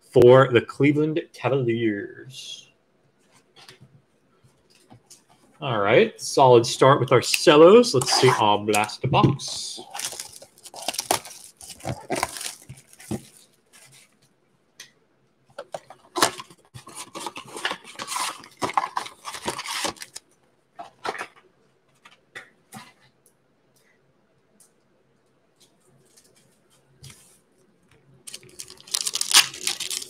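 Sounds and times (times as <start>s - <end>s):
cardboard box tearing: 9.9s - 12.9s, 28.7s - 30.0s.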